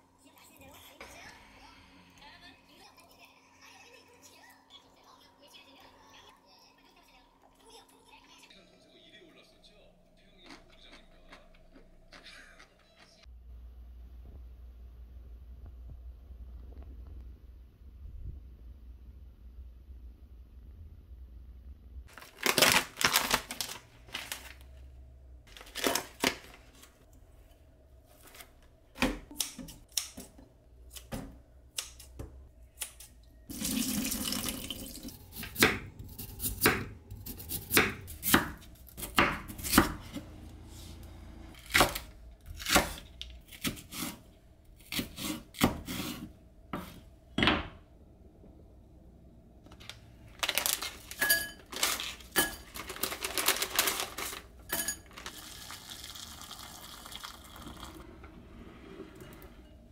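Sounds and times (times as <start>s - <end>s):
running water: 33.5s - 35.3s
knife chopping on cutting board: 35.5s - 40.2s, 44.8s - 47.0s.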